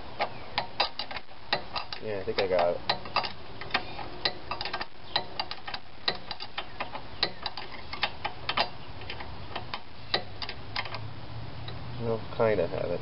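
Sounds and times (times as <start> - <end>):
ratchet wrench clicking: 0.6 - 11.0.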